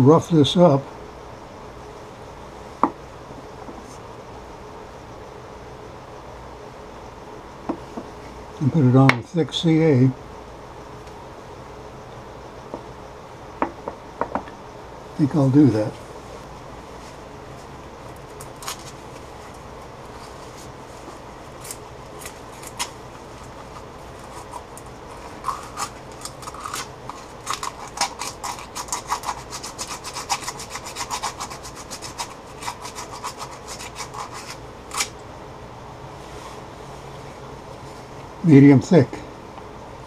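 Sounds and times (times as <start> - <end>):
sandpaper rubbing on metal: 25.5 - 35.1.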